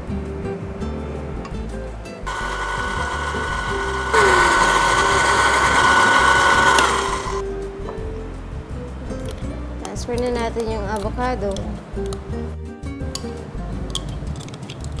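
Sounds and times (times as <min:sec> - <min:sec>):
electric blender running: 0:02.3 - 0:07.4.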